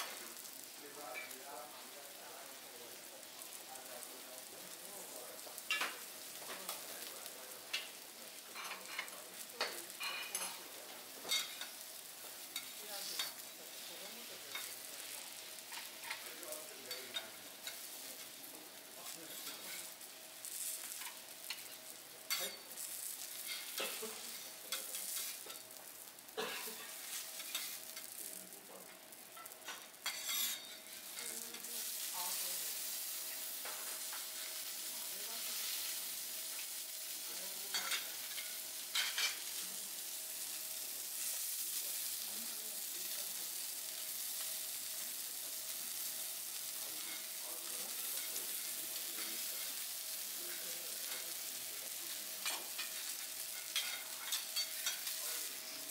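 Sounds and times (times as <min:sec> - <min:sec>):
food sizzling on a griddle: 0:00.0 - 0:55.9
metal spatulas clicking and scraping: 0:29.4 - 0:30.8, 0:52.4 - 0:55.1.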